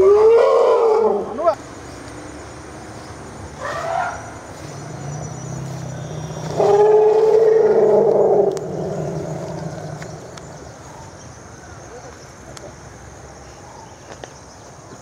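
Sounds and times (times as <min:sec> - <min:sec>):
elephant trumpeting: 0:06.5 - 0:09.9.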